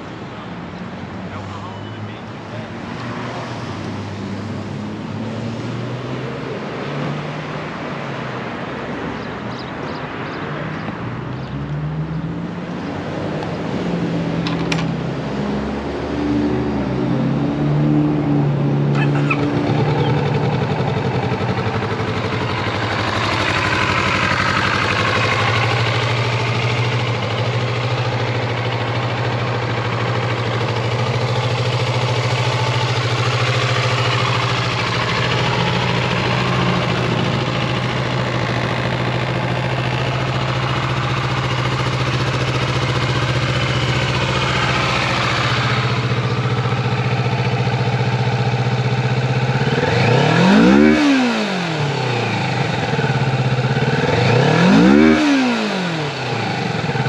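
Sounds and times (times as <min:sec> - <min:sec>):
motorcycle engine idling: 0:14.4 - 0:15.0, 0:18.9 - 0:57.0.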